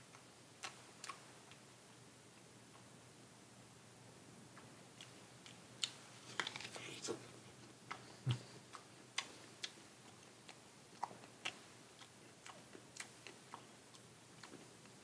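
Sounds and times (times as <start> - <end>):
person chewing crisp apple: 5.0 - 15.0.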